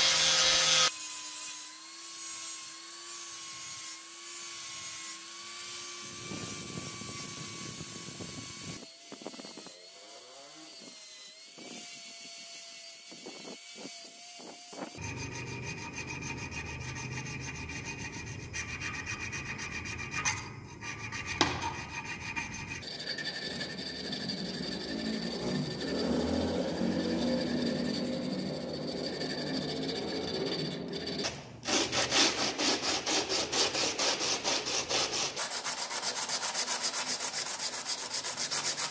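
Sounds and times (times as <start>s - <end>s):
angle grinder grinding metal: 0.0s - 38.9s
hand file rasping on metal: 0.0s - 38.9s
sharp knocks: 21.4s - 21.8s.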